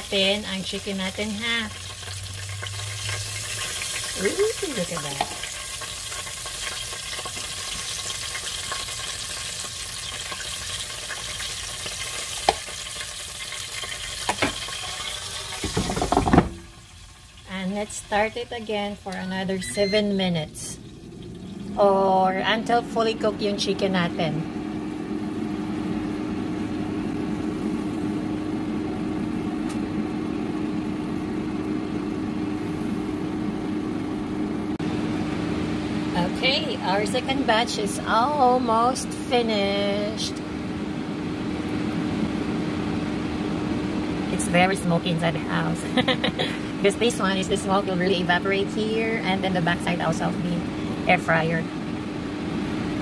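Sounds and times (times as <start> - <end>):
air fryer fan humming: 0.0 - 53.0
chicken sizzling: 0.0 - 53.0
air fryer basket clattering: 13.9 - 16.7.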